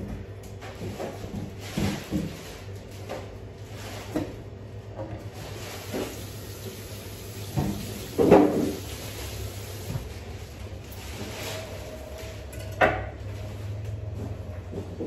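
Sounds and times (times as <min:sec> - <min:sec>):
kitchen clatter: 0:05.1 - 0:09.5.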